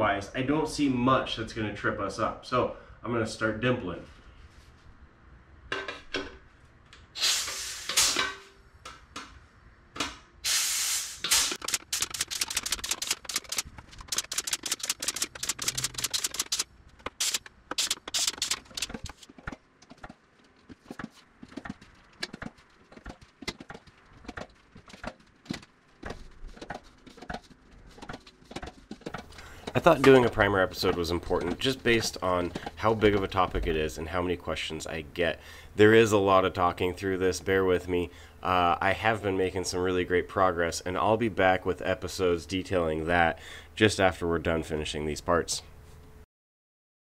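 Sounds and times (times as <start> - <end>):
short air hisses: 7.2 - 8.2, 10.4 - 11.6.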